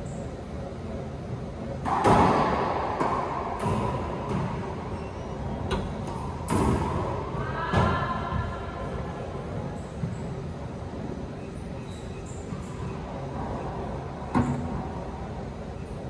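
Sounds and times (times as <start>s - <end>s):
racquetball hits echoing: 1.8s - 4.9s, 5.7s - 8.2s.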